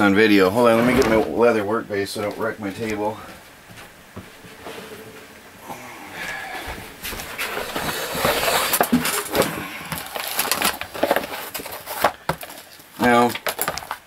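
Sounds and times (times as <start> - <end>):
mat rustling: 0.3 - 14.0.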